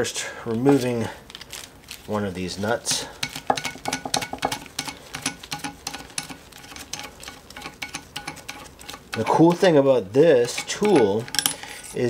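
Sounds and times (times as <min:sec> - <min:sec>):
metal nut clicking on threaded shaft: 0:10.4 - 0:12.0.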